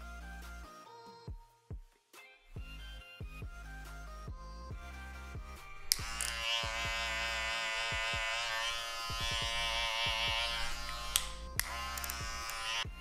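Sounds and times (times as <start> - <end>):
electric hair clipper buzzing: 5.6 - 13.0
sharp clicks: 5.9 - 6.4, 10.8 - 12.7.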